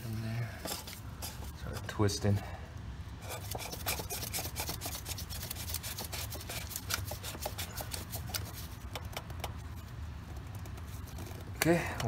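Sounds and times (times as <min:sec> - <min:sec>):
gloved hand rubbing: 0:03.2 - 0:11.6.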